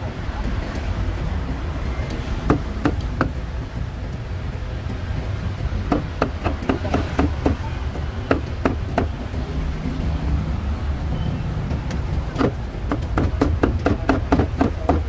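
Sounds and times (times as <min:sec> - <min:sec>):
cleaver chopping meat: 0:02.5 - 0:03.4, 0:05.9 - 0:07.6, 0:08.3 - 0:09.2, 0:12.3 - 0:15.0.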